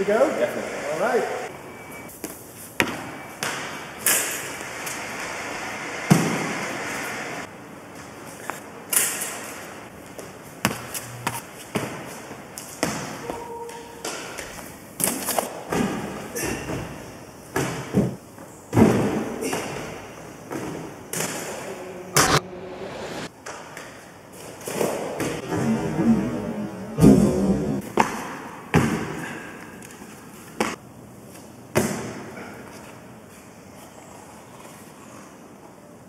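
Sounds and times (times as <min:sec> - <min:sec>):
feet thudding on boxes and pads: 0:10.0 - 0:13.4, 0:27.8 - 0:29.5.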